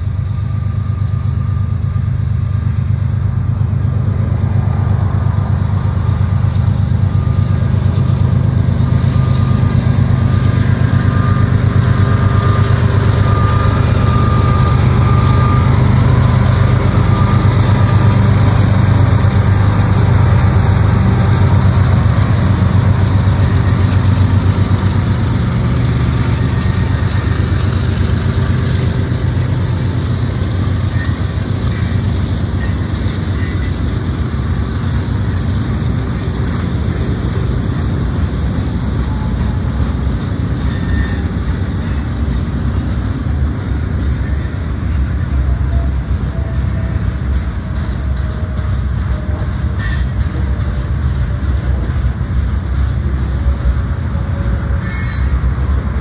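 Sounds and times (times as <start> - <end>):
diesel locomotive engines: 0.0 - 56.0
freight cars rolling by: 2.3 - 56.0.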